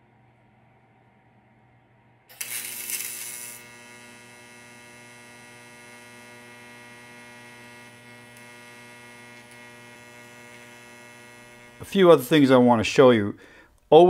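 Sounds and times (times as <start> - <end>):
welding arc hissing and buzzing: 2.3 - 12.7.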